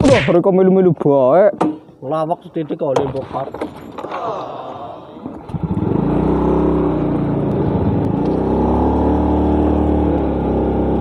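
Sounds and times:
motor scooter engine humming: 0:05.4 - 0:11.0.

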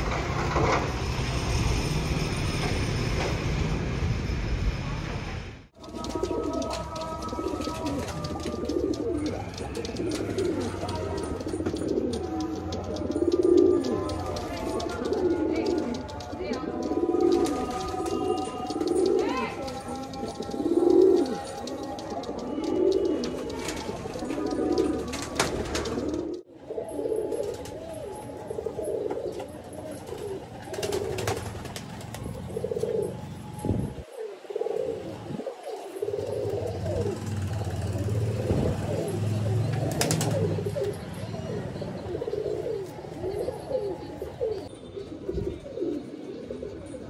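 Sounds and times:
sharp clicks: 0:05.8 - 0:26.4
pigeons cooing: 0:05.8 - 0:47.0.

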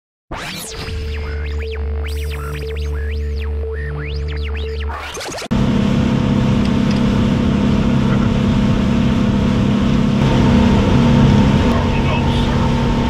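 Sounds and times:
outboard engine droning: 0:05.5 - 0:13.0.

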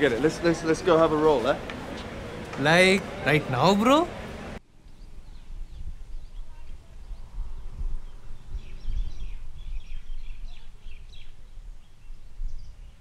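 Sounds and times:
birds chirping: 0:00.0 - 0:13.0
wind rumble on microphone: 0:04.8 - 0:13.0.

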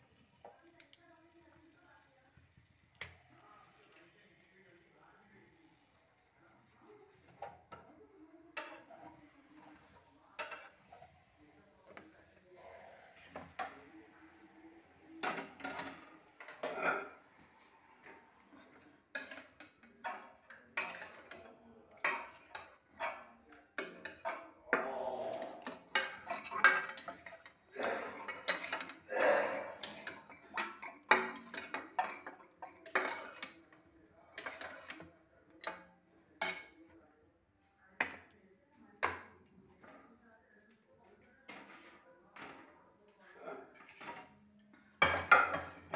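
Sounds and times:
metal dishes clinking and clattering: 0:08.6 - 0:14.3, 0:15.1 - 0:36.8, 0:43.5 - 0:45.9.

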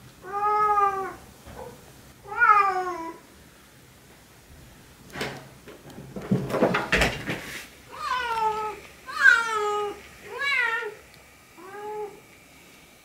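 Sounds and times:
cat meowing: 0:00.2 - 0:01.2, 0:02.2 - 0:03.2, 0:07.9 - 0:11.0.

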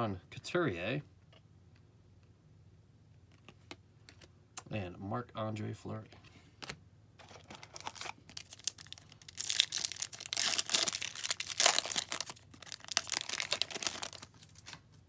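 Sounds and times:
foil wrapper tearing and crinkling: 0:07.2 - 0:14.8.

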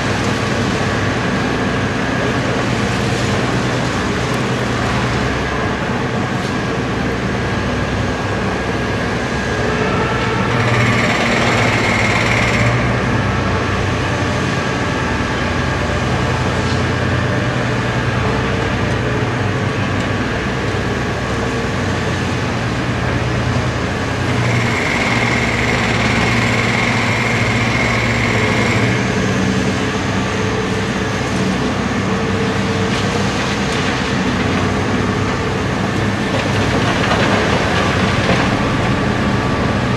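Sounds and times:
excavator diesel engine running: 0:00.0 - 0:39.9.

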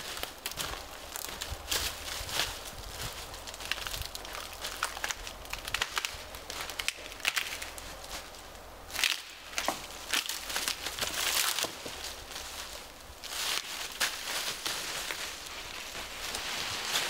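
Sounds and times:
footsteps crunching dry leaves: 0:00.0 - 0:17.0
pole dragged through rustling brush: 0:09.6 - 0:17.0.

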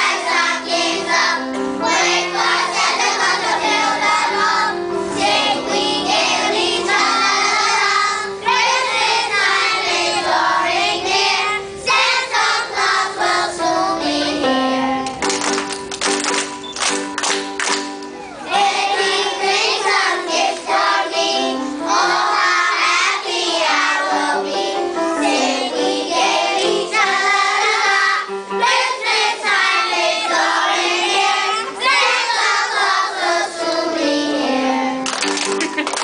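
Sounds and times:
children's choir singing: 0:00.0 - 0:15.3, 0:18.2 - 0:35.1
backing music: 0:00.0 - 0:36.0
children clapping: 0:15.0 - 0:18.2, 0:35.0 - 0:36.0.

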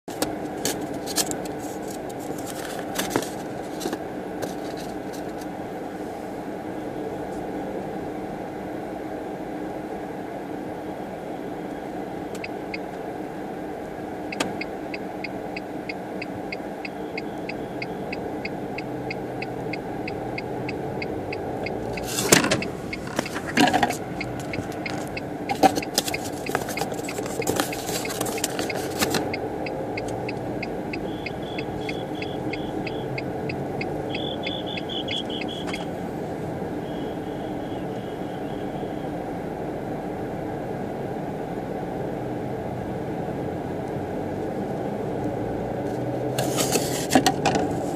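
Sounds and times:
car engine and road hum: 0:00.0 - 0:47.9
faint ticking: 0:24.2 - 0:35.8.

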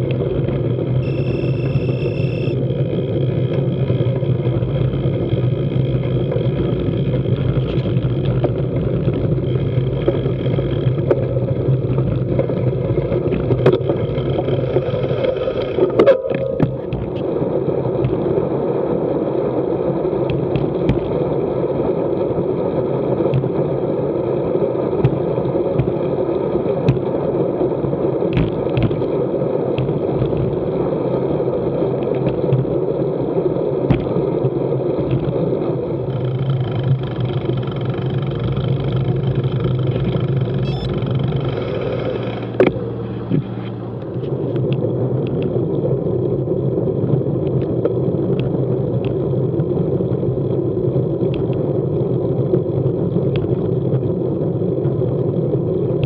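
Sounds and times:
wind and road noise: 0:00.0 - 0:56.0.

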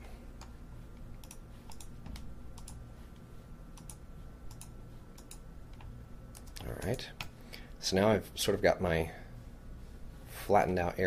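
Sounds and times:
faint low hum: 0:00.0 - 0:11.0
mouse and keyboard clicks: 0:01.2 - 0:02.8, 0:03.8 - 0:07.3.

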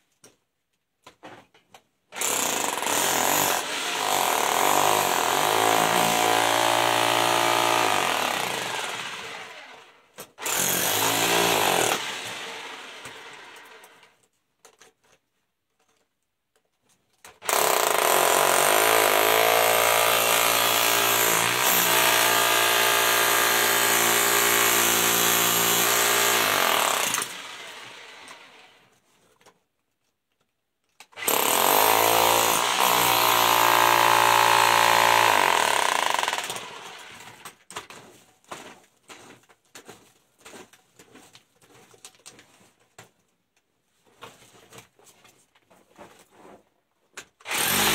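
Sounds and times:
jackhammer breaking ground: 0:02.2 - 0:09.5, 0:10.4 - 0:13.8, 0:17.4 - 0:28.0, 0:31.2 - 0:37.6, 0:47.5 - 0:47.9
small knocks and scrapes: 0:37.4 - 0:47.4.

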